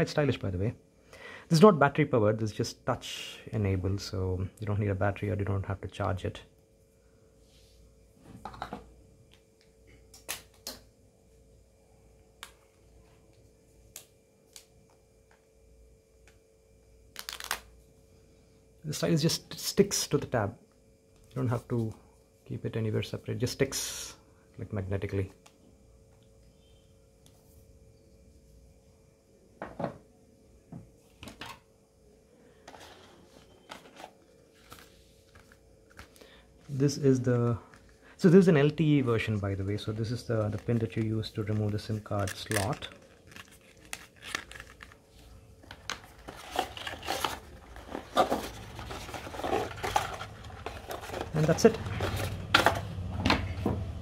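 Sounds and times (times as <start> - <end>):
faint steady hum: 0.0 - 54.0
cardboard rustle: 46.0 - 52.9.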